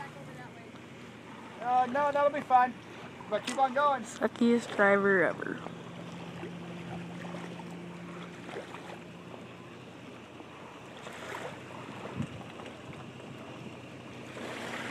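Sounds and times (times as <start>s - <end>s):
truck engine humming: 0.0s - 14.9s
water lapping: 0.0s - 14.9s
wind noise: 11.9s - 13.6s.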